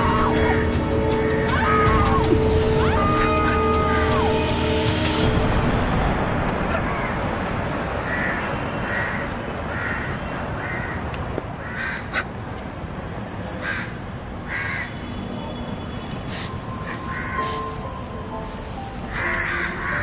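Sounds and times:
background hiss: 0.0 - 20.0
crow cawing: 8.1 - 12.3, 13.6 - 15.0, 16.8 - 17.6, 19.1 - 20.0.

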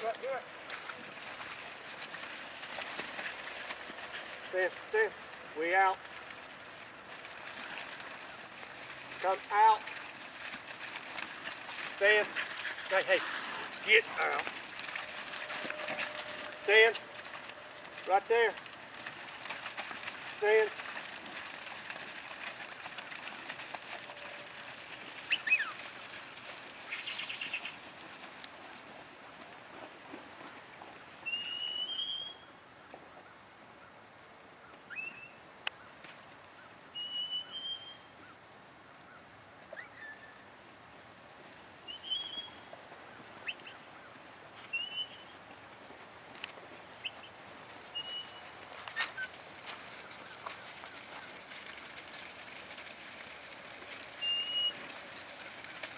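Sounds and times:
rustling: 0.0 - 33.2, 39.4 - 55.9
outdoor noise: 0.0 - 55.9
bird chirping: 26.9 - 27.8, 41.9 - 42.7, 44.7 - 45.3, 47.9 - 48.4.

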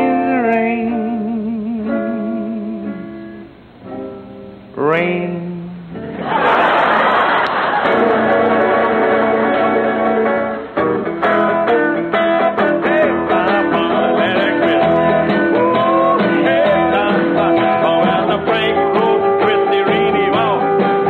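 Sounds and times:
man singing: 0.0 - 3.0, 4.7 - 6.0, 12.4 - 21.0
jazz guitar playing: 0.0 - 21.0.

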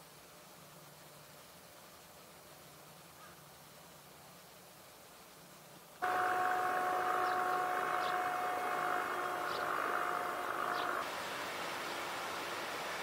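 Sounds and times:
jet engines whining: 6.0 - 13.0.

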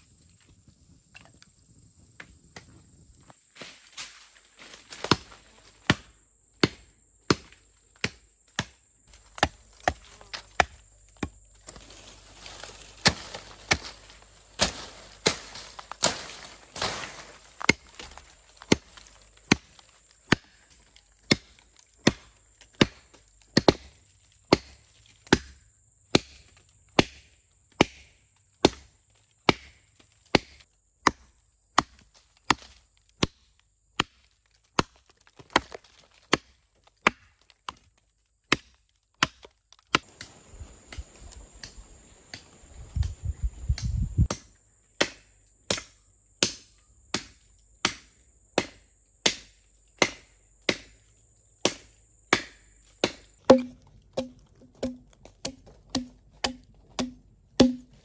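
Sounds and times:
leaves rustling: 3.2 - 5.9, 9.1 - 20.9
axe chopping log: 5.0 - 20.6, 21.2 - 37.9, 38.5 - 40.3, 44.3 - 51.0, 51.6 - 58.0.

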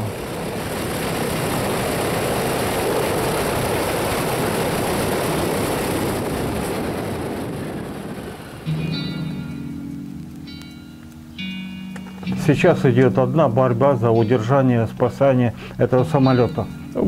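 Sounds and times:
radial piston engine running: 0.0 - 7.0.

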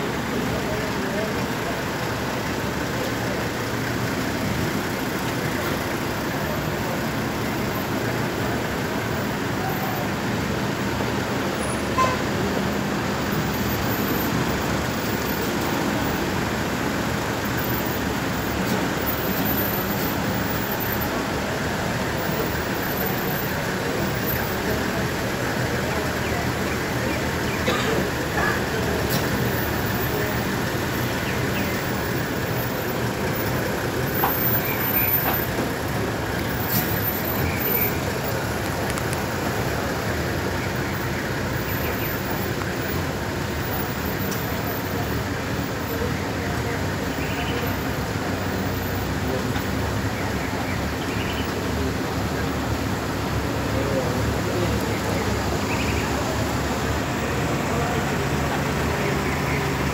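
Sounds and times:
cars driving slowly: 0.0 - 59.9
people's voices: 0.0 - 59.9.

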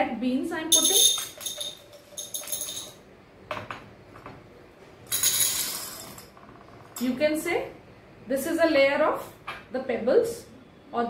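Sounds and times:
dried beans clattering into a glass: 0.7 - 3.0
glassy ring: 0.7 - 3.0.

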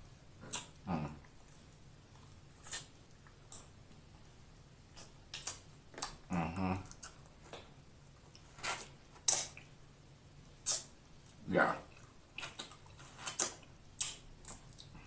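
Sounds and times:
wet lip smacks and sucks: 0.4 - 1.4, 2.2 - 3.8, 4.9 - 6.2, 8.3 - 9.7, 10.6 - 10.9, 12.3 - 14.9
person humming: 0.8 - 1.2, 6.3 - 7.0.

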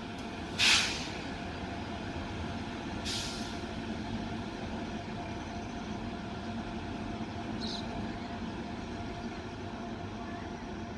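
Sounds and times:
air hiss: 0.6 - 1.2.

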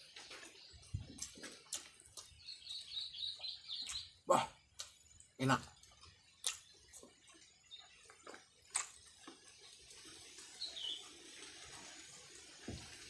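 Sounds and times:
bird chirp: 0.0 - 9.6, 10.4 - 11.3
person chewing: 1.2 - 2.8, 3.8 - 10.2
mouth clicks: 6.4 - 6.7.

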